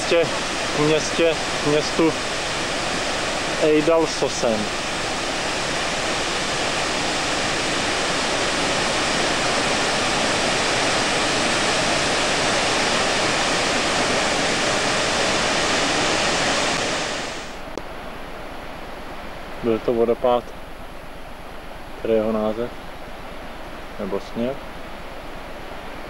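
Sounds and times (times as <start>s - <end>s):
waterfall rushing: 0.0s - 19.8s.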